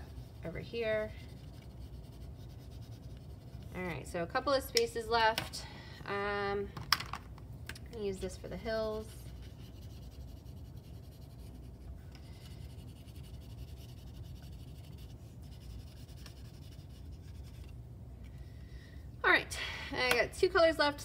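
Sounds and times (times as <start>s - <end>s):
marker scratching on styrofoam: 0.0s - 3.8s, 8.6s - 17.7s
steady low hum: 0.0s - 21.0s.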